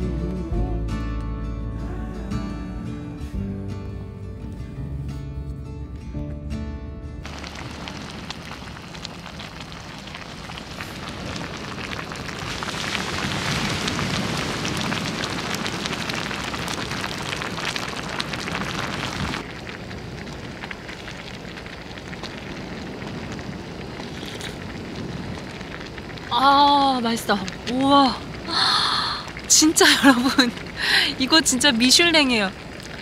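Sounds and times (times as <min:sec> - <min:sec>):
pasta sizzling in hot oil: 0:07.2 - 0:33.0.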